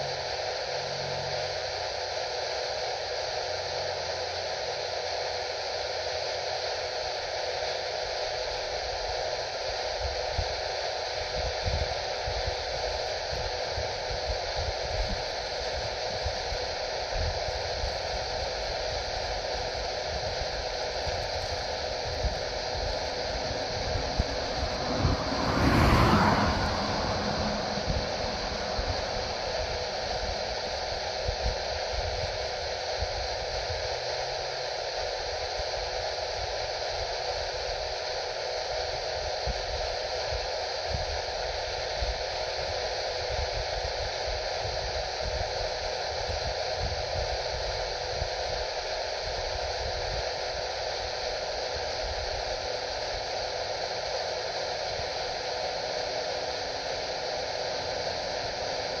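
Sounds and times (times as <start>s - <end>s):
faint hum: 11.2s - 37.0s.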